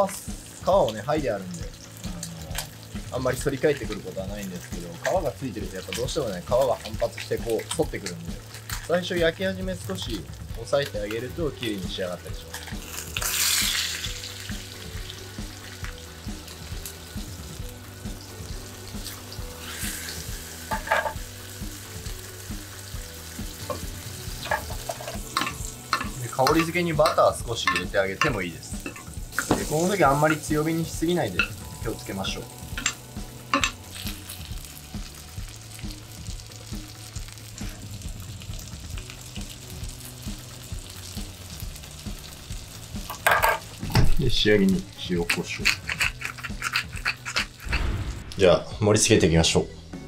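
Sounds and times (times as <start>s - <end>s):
fish fillet sizzling in a pan: 0.0s - 48.0s
background music with steady beat: 0.0s - 50.0s
metal spoon scraping a pan: 19.0s - 21.3s, 23.6s - 31.6s, 32.7s - 34.1s, 45.1s - 47.8s.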